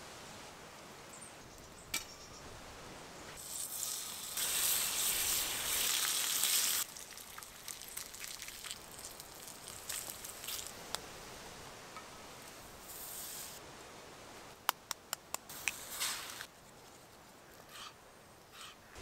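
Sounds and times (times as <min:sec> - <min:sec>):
fat sizzling in frying pan: 0:03.4 - 0:10.8.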